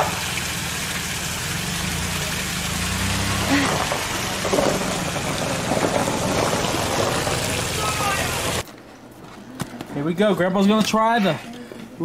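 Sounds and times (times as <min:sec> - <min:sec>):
van engine humming: 0:00.0 - 0:08.6
water gushing: 0:00.0 - 0:08.6.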